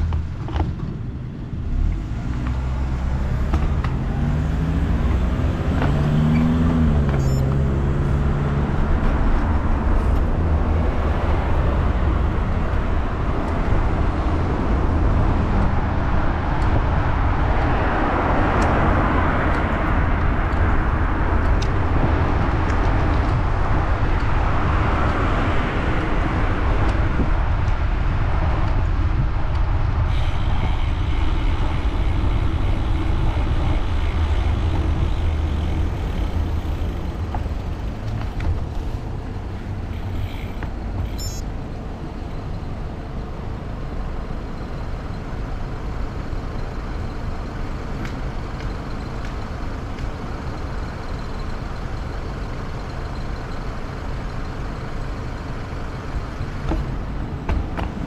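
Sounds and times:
road traffic: 0.0 - 58.0
wind rumbling on microphone: 8.2 - 41.2.

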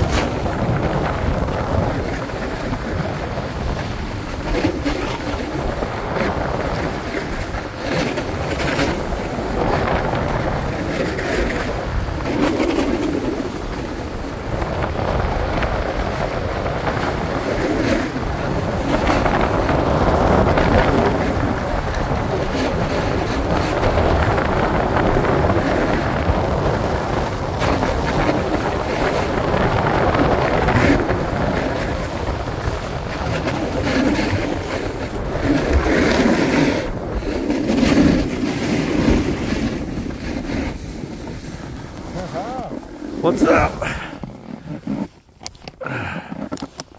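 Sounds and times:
wind over microphone: 0.0 - 46.9
ski edges scraping snow: 17.0 - 46.9.

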